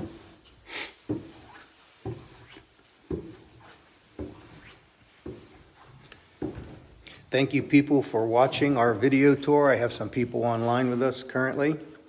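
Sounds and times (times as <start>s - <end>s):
footsteps on wooden stairs: 0.0s - 7.7s.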